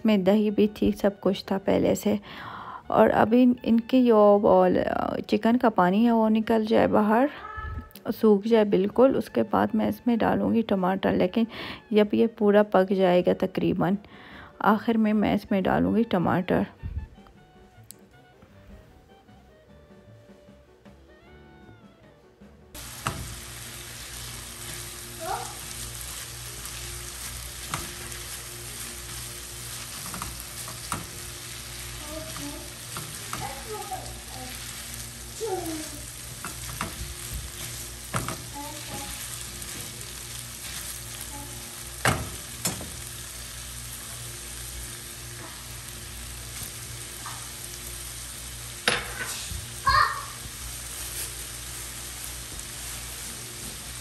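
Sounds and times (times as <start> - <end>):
chicken and onion sizzling in pan: 22.8 - 54.0.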